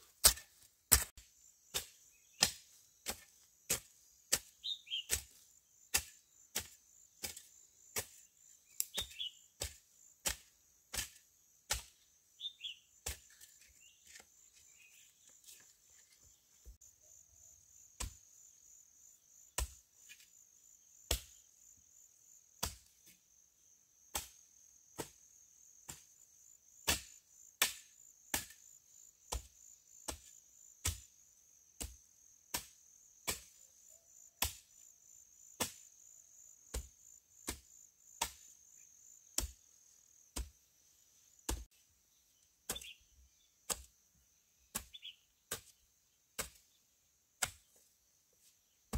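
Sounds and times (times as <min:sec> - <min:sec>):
hand tool chopping: 0:00.1 - 0:12.0, 0:26.9 - 0:28.6, 0:41.5 - 0:41.7, 0:42.7 - 0:42.9, 0:43.7 - 0:43.9, 0:44.7 - 0:44.9, 0:45.5 - 0:45.8, 0:46.4 - 0:46.6, 0:47.4 - 0:47.8.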